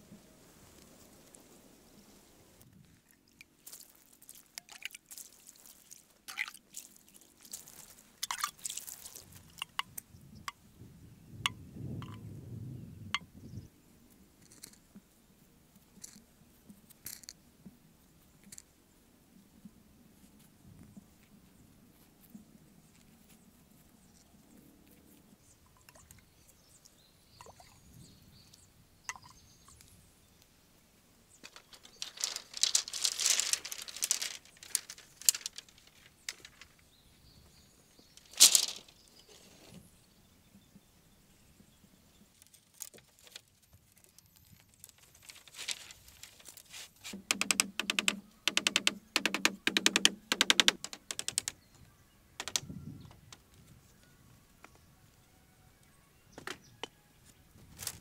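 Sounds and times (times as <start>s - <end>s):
bamboo poles clacking: 5.8s - 10.6s, 31.4s - 36.8s, 38.2s - 39.4s, 42.4s - 51.6s, 52.4s - 53.4s
hollow taps on bamboo: 47.0s - 51.6s, 52.4s - 53.4s.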